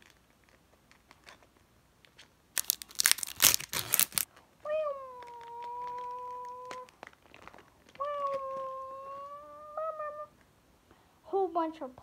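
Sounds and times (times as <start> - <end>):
wrapper torn with crinkling rip: 2.5 - 4.3, 5.1 - 8.7.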